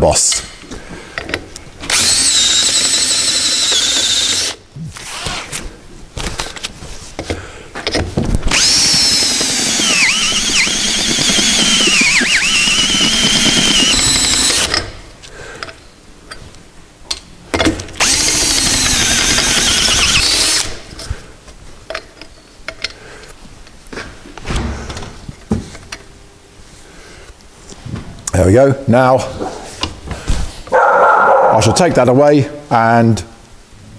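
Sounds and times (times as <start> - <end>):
cordless drill with metallic squeal: 1.9 - 4.6, 8.5 - 14.8, 18.0 - 20.7.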